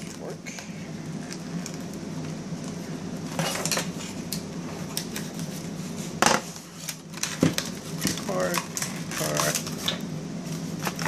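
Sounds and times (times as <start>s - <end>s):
packages clicking and knocking: 6.2s - 10.0s.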